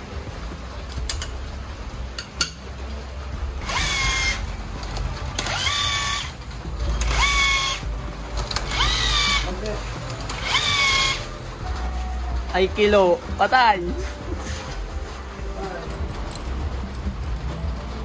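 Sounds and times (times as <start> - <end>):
power tool whining: 3.6 - 4.6, 5.4 - 11.4.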